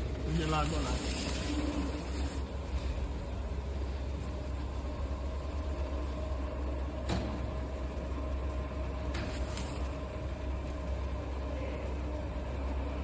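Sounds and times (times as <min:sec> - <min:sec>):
faint machine whine: 0:00.0 - 0:13.0
laminating machine humming: 0:00.0 - 0:13.0
plastic film crackle: 0:00.2 - 0:02.5, 0:09.3 - 0:10.0.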